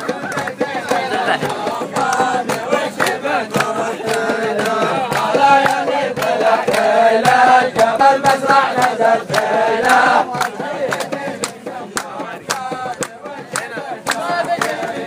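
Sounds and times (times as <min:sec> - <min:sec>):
men chanting and singing: 0:00.0 - 0:15.0
sharp rhythmic hits: 0:00.0 - 0:15.0.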